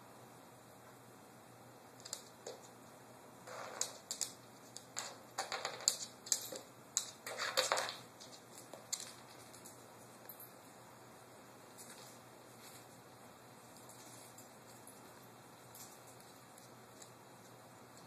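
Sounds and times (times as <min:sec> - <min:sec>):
dog claws clicking on wooden floor: 0:02.0 - 0:02.8, 0:03.5 - 0:09.9.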